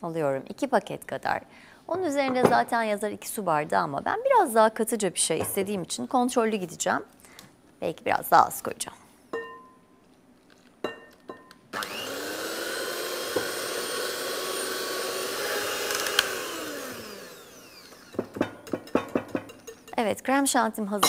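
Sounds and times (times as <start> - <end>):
electric hand mixer running: 11.8 - 18.5.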